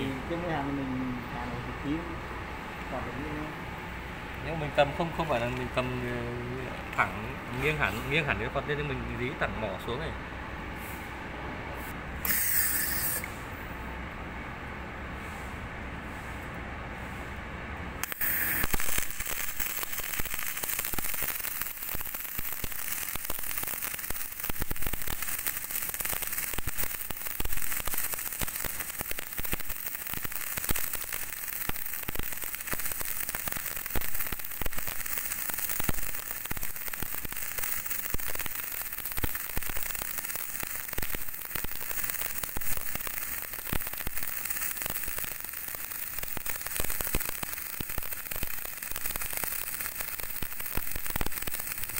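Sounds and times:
welding arc crackling: 4.4 - 9.4, 12.2 - 13.4, 18.0 - 51.9.

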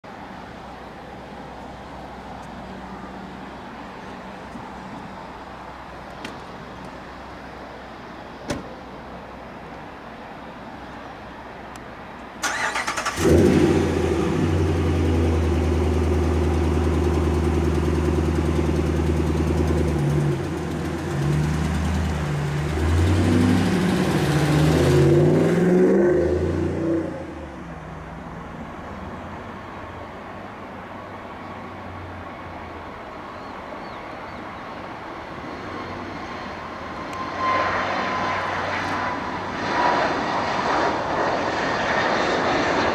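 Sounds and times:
loud engine humming: 12.5 - 27.9.

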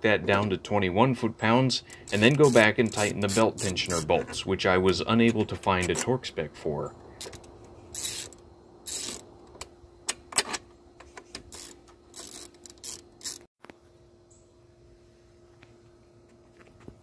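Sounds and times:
low steady hum: 0.0 - 17.0
ratchet wrench clicking: 1.9 - 4.1, 7.2 - 9.2, 11.4 - 13.5.

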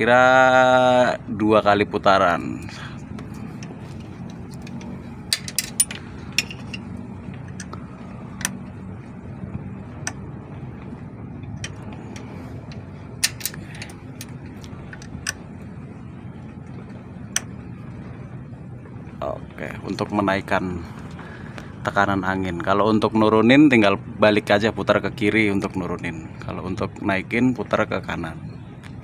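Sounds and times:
steady low hum: 0.0 - 29.0
allen key metal clicks and taps: 11.5 - 15.4.

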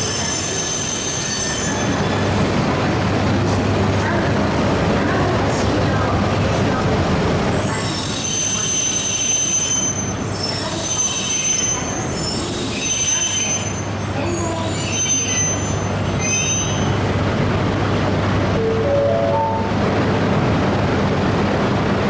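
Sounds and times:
train wheels squealing: 0.0 - 2.3, 7.6 - 17.0
low train running hum: 0.0 - 22.0.

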